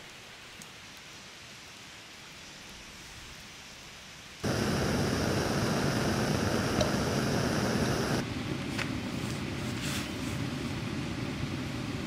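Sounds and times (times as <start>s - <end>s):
gas stove burning: 4.4s - 12.0s.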